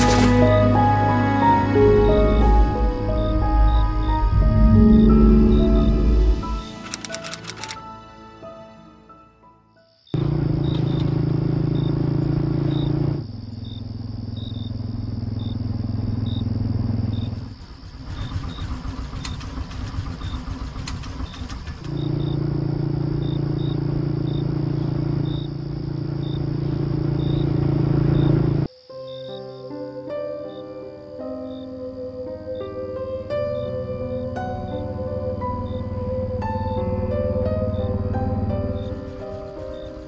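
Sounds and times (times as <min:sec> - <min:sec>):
high insect whine: 0:00.0 - 0:08.0, 0:09.9 - 0:40.0
crickets chirping: 0:00.7 - 0:08.0, 0:09.1 - 0:40.0
motorcycle engine running: 0:10.2 - 0:28.7, 0:35.1 - 0:40.0.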